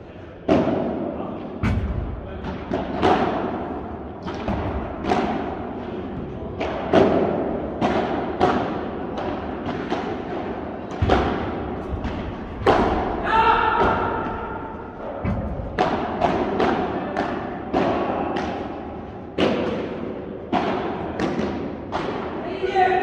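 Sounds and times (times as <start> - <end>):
ball struck by rackets: 1.6 - 18.8, 19.4 - 22.4
ball bouncing on court: 4.2 - 18.6.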